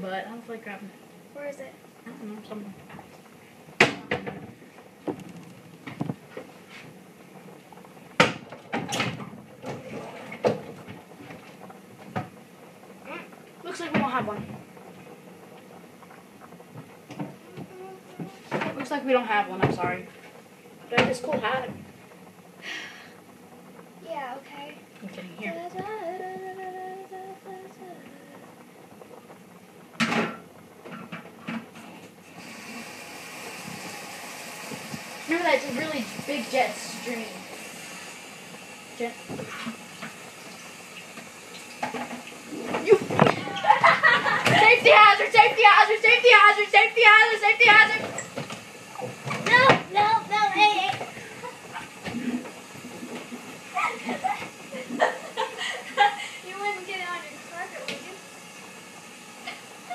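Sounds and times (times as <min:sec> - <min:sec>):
water running into sink: 0:30.0 - 0:59.9.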